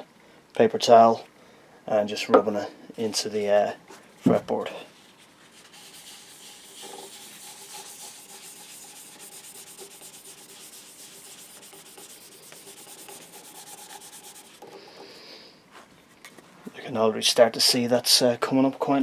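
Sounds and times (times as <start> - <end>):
paper towel rubbing a fretboard: 4.9 - 15.1.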